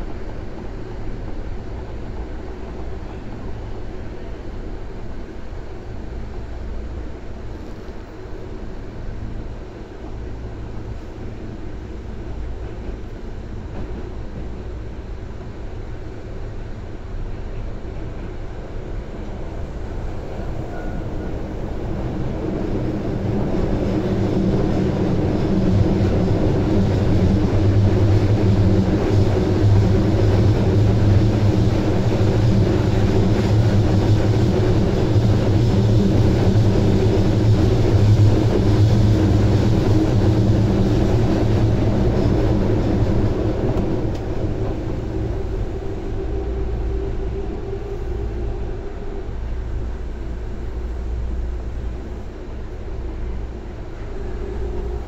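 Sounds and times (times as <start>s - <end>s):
train wheels rumbling on rails: 0.0s - 55.0s.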